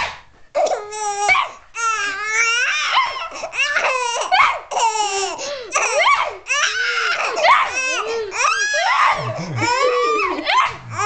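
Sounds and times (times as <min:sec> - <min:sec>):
baby laughing: 0:07.0 - 0:11.0.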